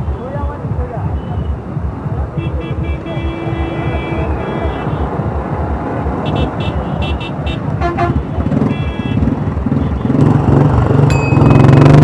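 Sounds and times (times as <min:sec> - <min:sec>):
vehicle horns tooting: 0:02.4 - 0:05.3, 0:06.2 - 0:10.4
motorcycle engine running: 0:04.6 - 0:12.0.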